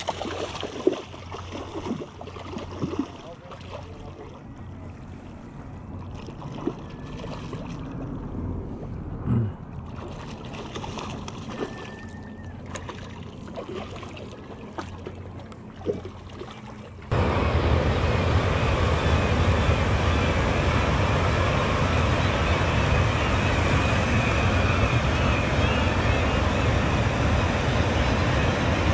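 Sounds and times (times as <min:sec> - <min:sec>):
water rushing over weir: 0:00.0 - 0:04.0
small water splashes: 0:00.0 - 0:08.2, 0:09.7 - 0:17.1.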